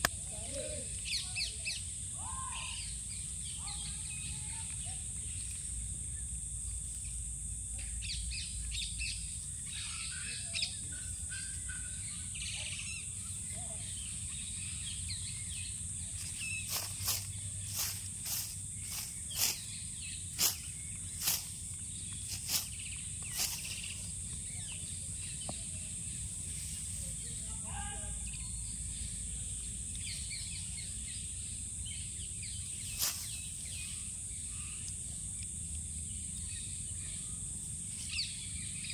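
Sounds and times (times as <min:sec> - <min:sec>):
birds chirping: 0:07.8 - 0:38.9.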